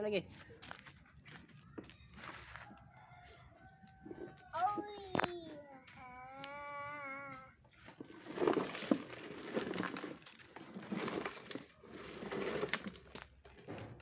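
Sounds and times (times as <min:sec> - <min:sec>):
plastic wheels crunching on gravel: 0:00.3 - 0:02.6, 0:04.0 - 0:14.0.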